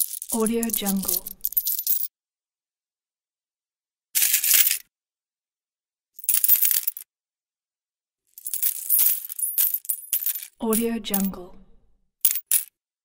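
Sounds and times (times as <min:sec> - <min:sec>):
metal coins jingling: 0:00.0 - 0:02.1, 0:04.2 - 0:04.8, 0:06.2 - 0:07.0, 0:08.4 - 0:10.6, 0:12.3 - 0:12.7.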